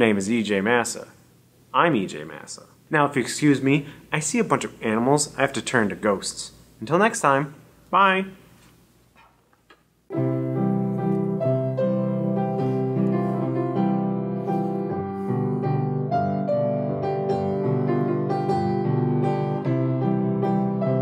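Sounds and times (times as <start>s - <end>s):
piano music: 10.1s - 21.0s.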